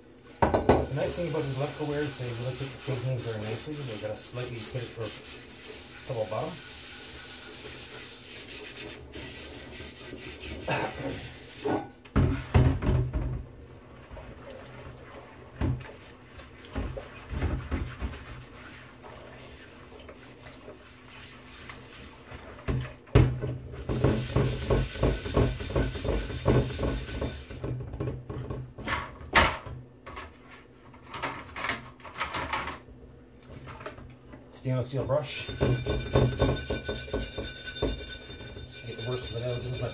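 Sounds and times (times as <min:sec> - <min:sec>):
pan knocking in sink: 0:00.4 - 0:01.0, 0:11.7 - 0:13.4, 0:22.7 - 0:29.8, 0:35.4 - 0:39.9
scraping skillet: 0:00.4 - 0:12.6, 0:23.8 - 0:27.7, 0:35.3 - 0:39.9.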